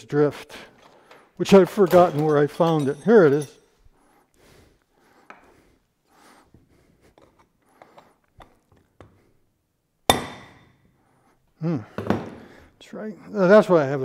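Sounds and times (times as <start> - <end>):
rubber hammer striking metal: 10.1 - 10.8.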